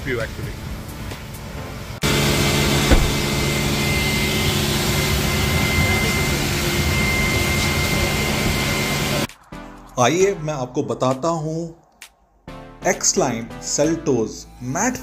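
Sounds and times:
vacuum cleaner running: 2.0s - 9.3s
brief knock: 2.9s - 3.2s.

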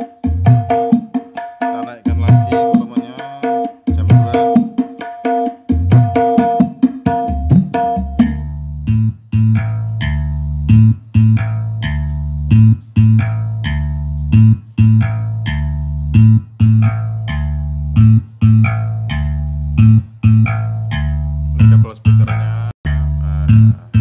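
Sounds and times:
bass-heavy music over loudspeakers: 1.8s - 4.7s, 7.1s - 24.0s.

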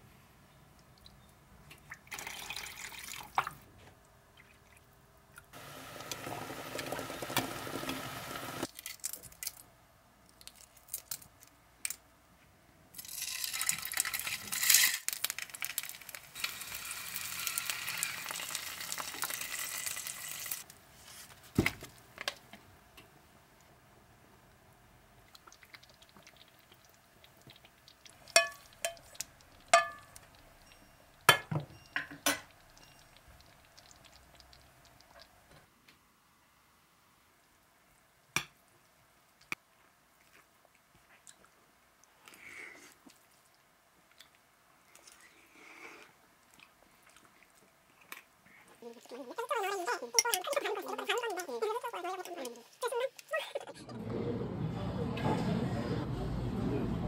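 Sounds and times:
eggs sizzling in a frying pan: 5.5s - 8.9s, 13.0s - 20.8s, 25.4s - 35.6s, 49.0s - 53.6s
spatula stirring in a saucepan: 27.4s - 31.2s, 49.2s - 53.6s
metal spoon clinking on pans: 28.3s - 33.2s.

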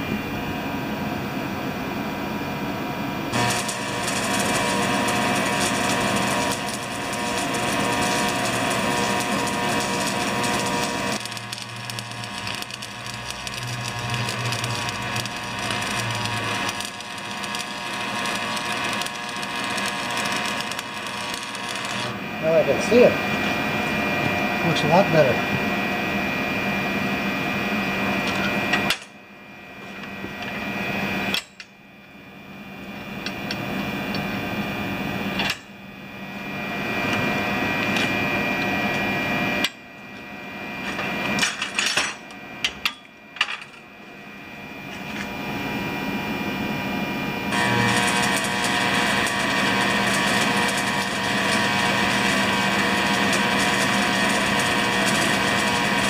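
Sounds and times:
welding arc crackling and hissing: 3.3s - 25.4s, 47.5s - 56.0s.

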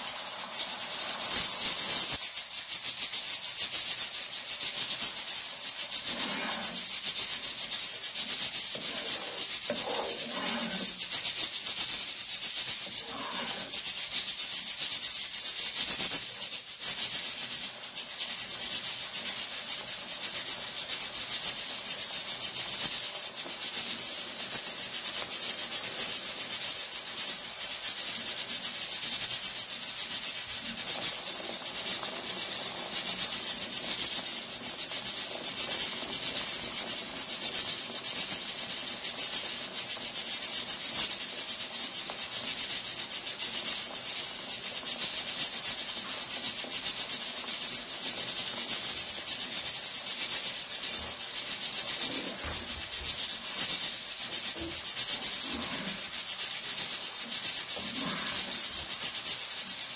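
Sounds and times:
paste sizzling in hot oil: 0.0s - 59.9s
spatula scraping a pan: 5.8s - 14.3s, 54.5s - 56.1s, 57.7s - 58.9s.

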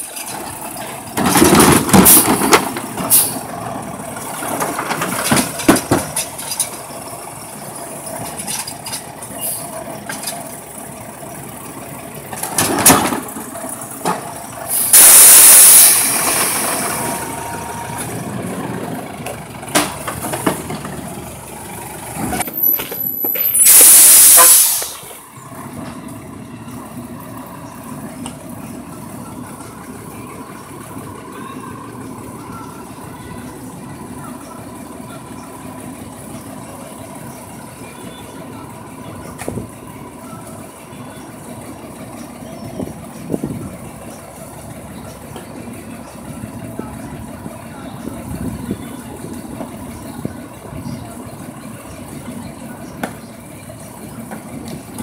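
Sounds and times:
garbage truck engine idling: 0.0s - 55.0s
air brake hiss: 14.7s - 17.0s, 23.4s - 25.2s.

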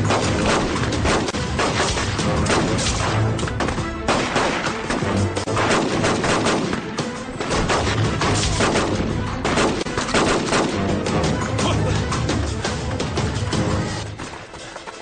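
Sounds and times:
rapid gunfire: 0.0s - 11.0s
dramatic background music: 0.0s - 15.0s.

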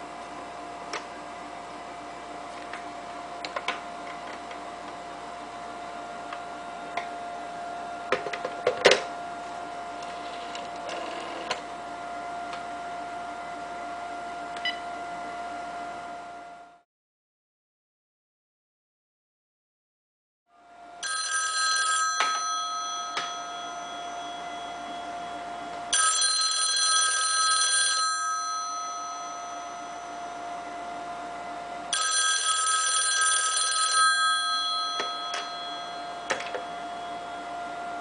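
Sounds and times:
telephone bells ringing: 21.0s - 30.8s, 31.9s - 37.6s.

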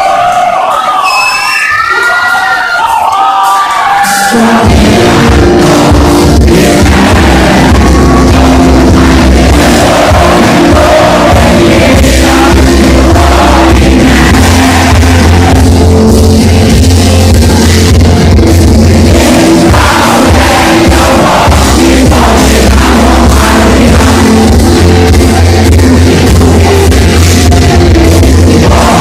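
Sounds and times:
drums: 0.0s - 29.0s
person singing: 4.0s - 29.0s
electric guitars: 4.3s - 29.0s.

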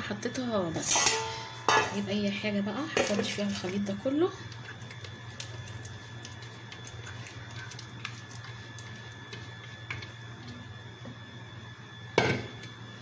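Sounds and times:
steady low hum: 0.0s - 13.0s
spatula scraping into metal bowl: 0.8s - 2.0s.

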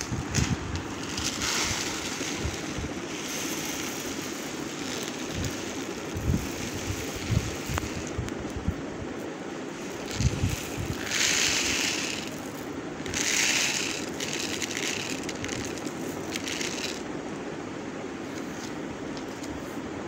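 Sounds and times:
rice pouring into metal bowl: 0.0s - 8.2s, 9.7s - 17.0s.

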